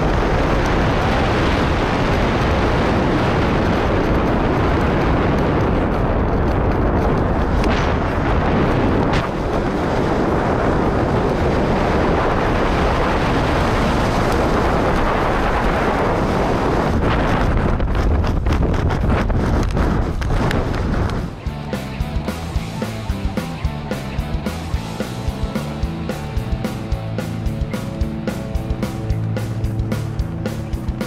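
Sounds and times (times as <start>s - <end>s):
wind rush on microphone: 0.0s - 31.0s.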